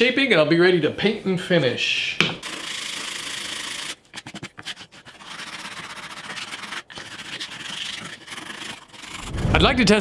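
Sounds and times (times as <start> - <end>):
hand sanding wood: 2.4 - 9.2.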